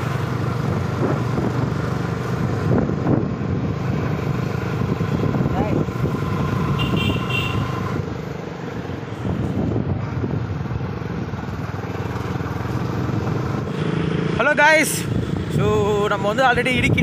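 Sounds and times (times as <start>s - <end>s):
wind and road noise: 0.0s - 17.0s
motorcycle engine running: 9.6s - 17.0s.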